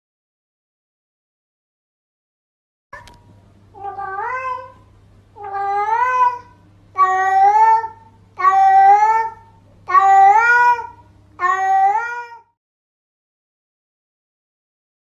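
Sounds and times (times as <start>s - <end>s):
cat meowing loudly: 3.8s - 4.8s, 5.4s - 12.6s.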